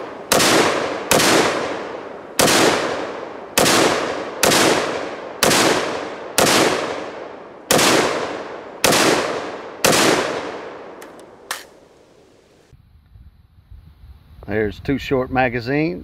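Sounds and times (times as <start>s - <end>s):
rifle shots: 0.0s - 11.8s.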